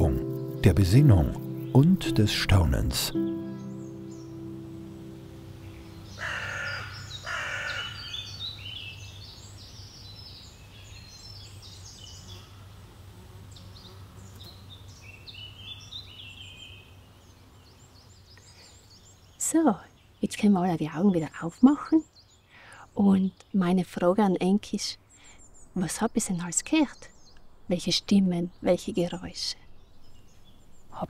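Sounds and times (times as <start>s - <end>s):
songbirds chirping: 0.0s - 31.0s
crow-like caws: 6.2s - 8.2s.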